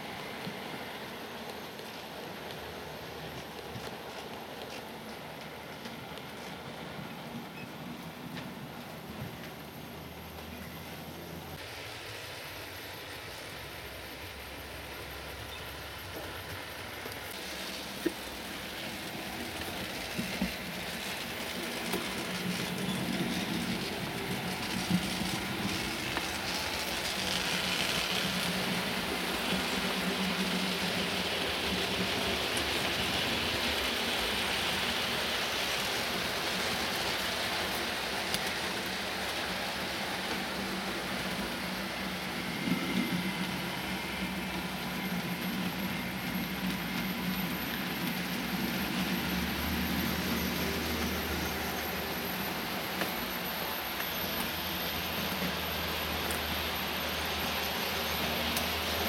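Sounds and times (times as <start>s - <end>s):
steady hiss: 10.6s - 59.0s
model train wheels rattling on rails: 15.3s - 59.0s.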